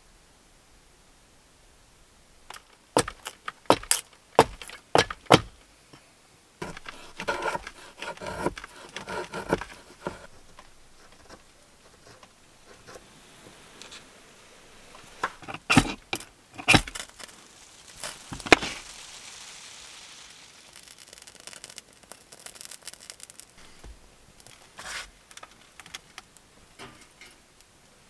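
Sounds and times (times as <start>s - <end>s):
scraping and rasping on wood: 2.5s - 5.5s, 6.6s - 14.1s, 14.7s - 17.3s
sharp knocks on wood: 3.0s - 5.6s.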